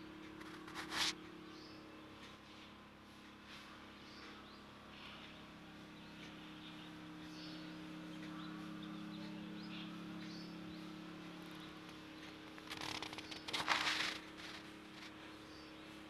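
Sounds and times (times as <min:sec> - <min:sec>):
steady low hum: 0:00.0 - 0:16.0
faint bird chirps: 0:03.4 - 0:16.0
crackling noise: 0:11.9 - 0:15.2.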